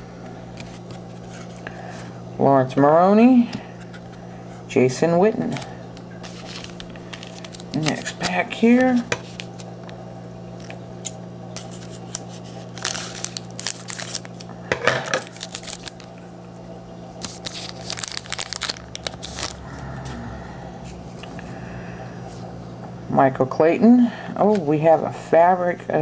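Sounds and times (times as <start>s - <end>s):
cards rustling: 0.5s - 2.0s, 5.4s - 9.7s, 10.6s - 16.2s, 17.2s - 19.6s
wrapper tearing and crinkling: 6.2s - 9.7s, 10.6s - 16.2s, 17.2s - 19.6s.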